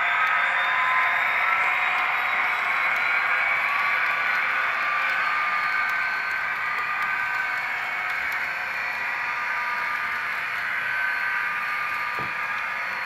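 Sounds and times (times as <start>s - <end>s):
model train whirring: 0.0s - 13.0s.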